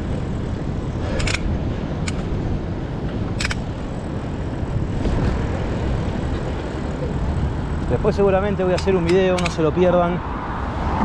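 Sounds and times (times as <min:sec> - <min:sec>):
wind rushing over microphone: 0:00.0 - 0:11.0
sharp click: 0:03.4 - 0:03.7, 0:08.7 - 0:09.7.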